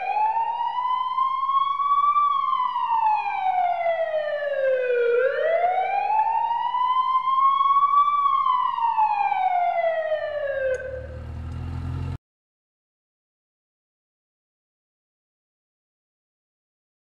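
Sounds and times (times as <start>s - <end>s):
fire truck siren wailing: 0.0s - 12.2s.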